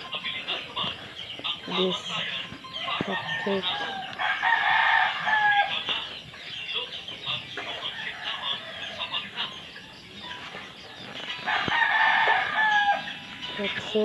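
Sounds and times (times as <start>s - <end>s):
chicken clucking: 0.0s - 14.0s
rooster crowing: 2.8s - 5.8s, 11.4s - 13.2s.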